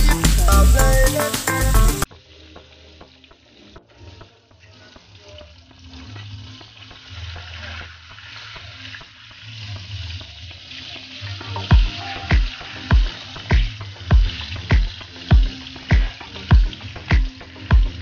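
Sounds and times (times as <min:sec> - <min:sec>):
bass drum beats: 0:00.0 - 0:02.1, 0:11.7 - 0:18.0
background music: 0:00.0 - 0:18.0
fish sizzling in hot oil: 0:00.0 - 0:18.0.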